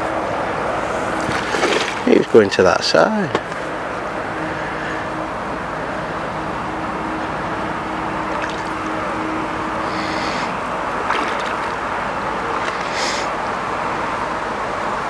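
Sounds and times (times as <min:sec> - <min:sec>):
steady background hiss: 0:00.0 - 0:15.0
fish splashing at water surface: 0:01.2 - 0:02.1, 0:08.3 - 0:08.9, 0:09.9 - 0:11.9, 0:12.5 - 0:13.3.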